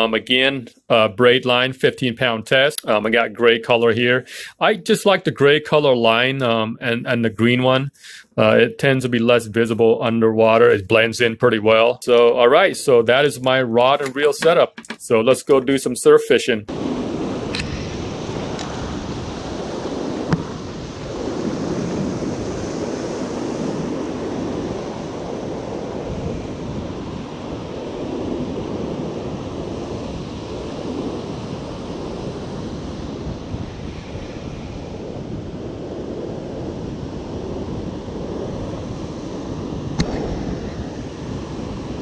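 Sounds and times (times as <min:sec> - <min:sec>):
ocean surf breaking: 0:16.7 - 0:42.0
wind buffeting microphone: 0:16.7 - 0:42.0
sharp click: 0:40.0 - 0:40.4.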